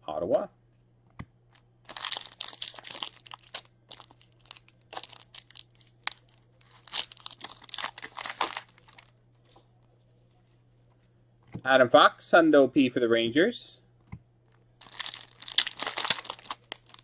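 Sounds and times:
wrapper tearing and crinkling: 1.8s - 9.1s, 14.8s - 17.0s.

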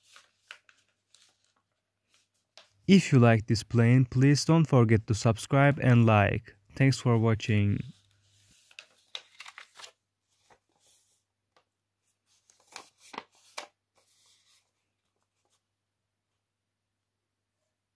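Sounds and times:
paper crinkling and rustling: 0.0s - 2.8s, 7.9s - 15.6s.

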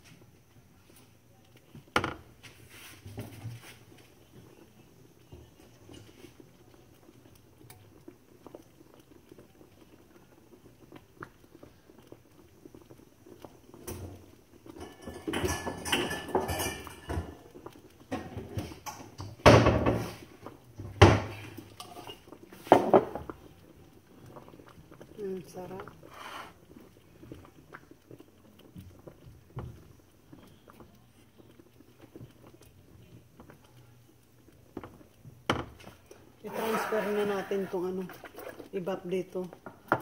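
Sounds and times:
dishes and utensils clinking: 14.8s - 17.4s, 21.8s - 23.2s.

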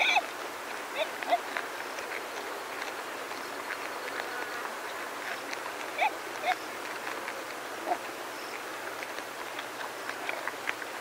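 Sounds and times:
faint grazing clicks: 0.0s - 11.0s.

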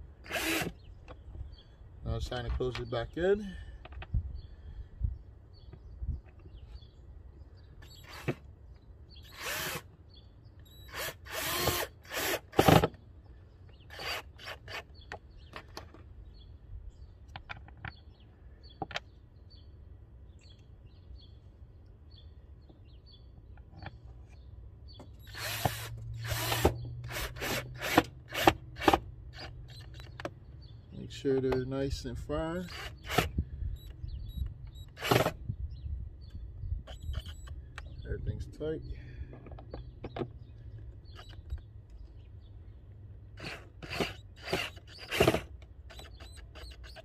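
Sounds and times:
cordless drill bursts: 0.2s - 0.8s, 7.8s - 8.4s, 9.2s - 9.9s, 10.7s - 12.9s, 13.9s - 15.0s, 25.2s - 30.0s, 32.6s - 35.4s, 36.9s - 37.6s, 43.4s - 47.0s.

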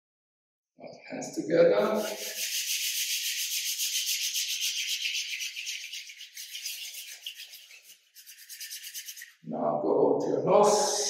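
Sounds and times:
palms rubbing together: 1.8s - 9.4s.

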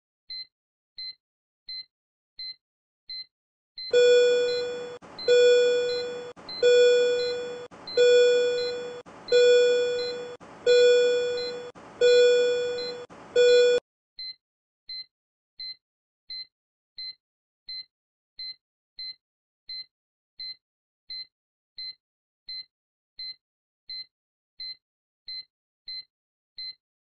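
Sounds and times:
repeating alarm tone: 3.9s - 13.8s
short high beeps: 3.9s - 13.8s.

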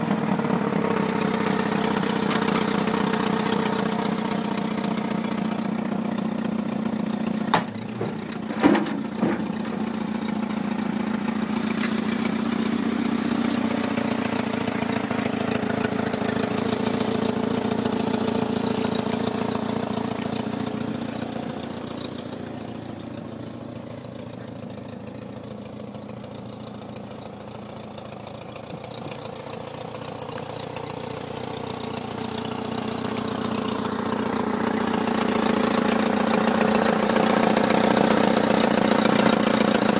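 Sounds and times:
small engine idling: 0.0s - 39.9s
sharp knocks: 7.5s - 10.0s.

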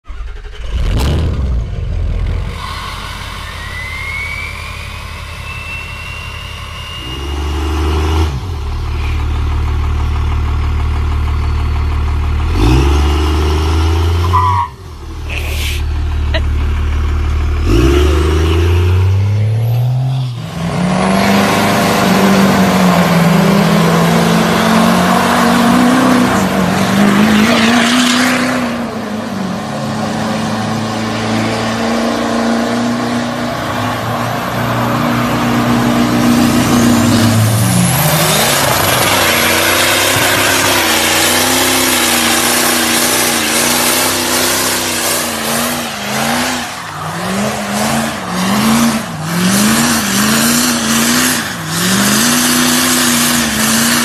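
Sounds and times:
diesel pickup engine revving: 0.0s - 54.0s
tyre noise hissing: 15.3s - 15.9s.

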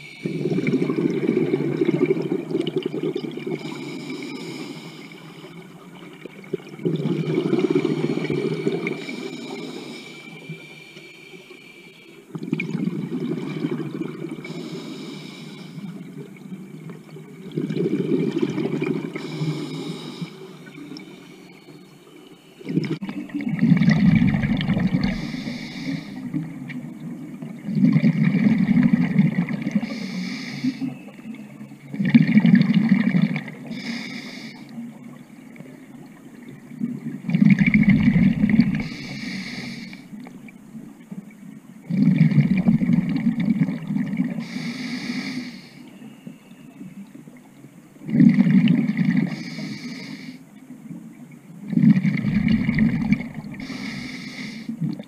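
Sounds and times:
bubbling hiss: 0.0s - 31.1s, 32.0s - 40.9s, 41.9s - 45.9s, 48.1s - 50.5s, 51.6s - 55.0s
diver breathing through regulator: 3.6s - 5.6s, 7.6s - 12.3s, 14.4s - 16.0s, 19.2s - 21.5s, 23.9s - 26.4s, 29.8s - 31.0s, 33.7s - 34.7s, 37.7s - 40.2s, 44.4s - 45.9s, 49.2s - 50.4s, 52.0s - 54.8s.

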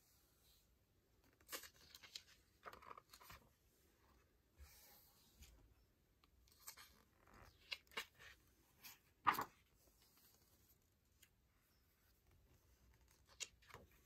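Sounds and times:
book pages turning and rustling: 1.2s - 5.6s, 6.2s - 11.4s, 12.0s - 14.0s.

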